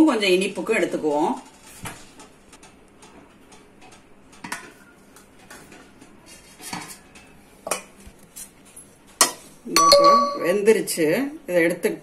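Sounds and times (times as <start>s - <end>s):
steel pots clinking and knocking: 9.2s - 10.7s.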